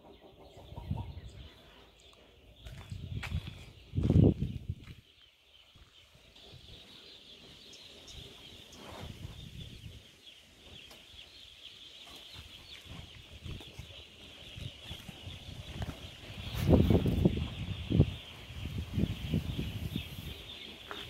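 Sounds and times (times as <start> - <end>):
chickens calling: 0.0 - 5.0, 5.7 - 21.0
low rumbling on microphone: 2.6 - 5.0.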